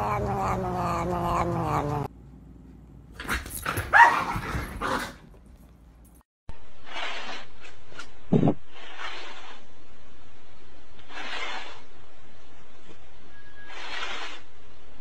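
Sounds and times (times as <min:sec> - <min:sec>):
cat growling: 0:00.0 - 0:02.1.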